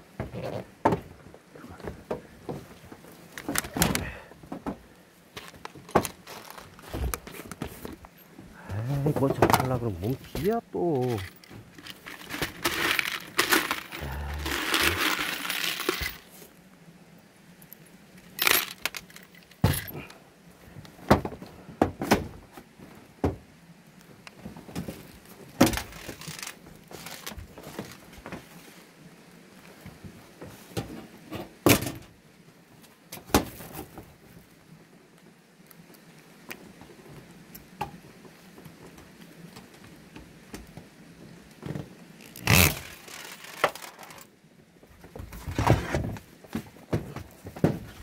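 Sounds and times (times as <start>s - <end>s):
metal screws rattling in plastic jar: 11.1s - 16.3s, 18.4s - 20.0s, 25.8s - 27.3s, 42.3s - 44.3s.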